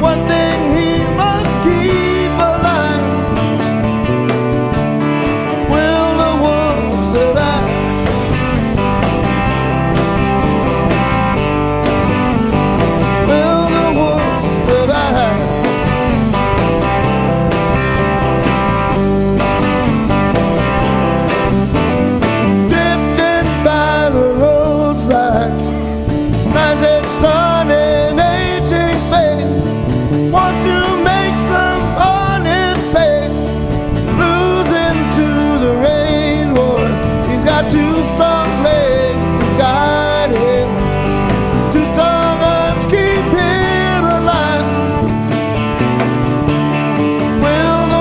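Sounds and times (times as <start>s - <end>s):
man singing: 0.0s - 3.9s, 5.4s - 8.4s, 13.0s - 16.3s, 22.3s - 45.4s, 47.2s - 48.0s
live rock band: 0.0s - 48.0s.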